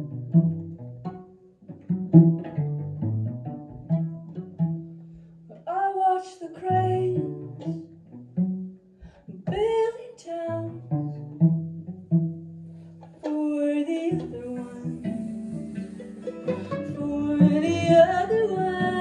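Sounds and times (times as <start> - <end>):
plucked upright bass: 0.0 - 5.7, 6.5 - 19.0
person singing: 13.2 - 19.0
acoustic guitar: 15.0 - 19.0.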